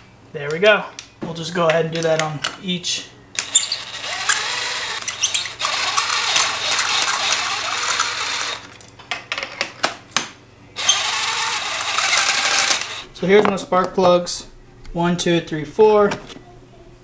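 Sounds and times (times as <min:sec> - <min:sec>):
cordless impact driver whirring: 0:03.4 - 0:08.8, 0:10.8 - 0:13.1.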